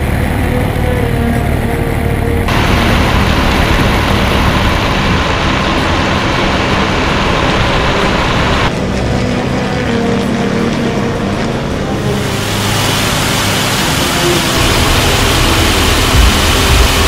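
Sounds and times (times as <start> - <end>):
aircraft engines roaring: 0.0 - 17.0
muffled engine drone: 0.0 - 17.0
airflow rushing: 2.5 - 8.7, 12.0 - 17.0.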